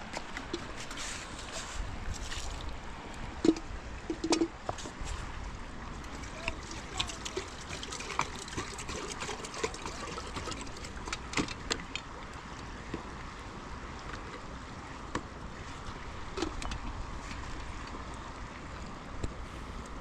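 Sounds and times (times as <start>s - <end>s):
river water rushing: 0.0s - 19.8s.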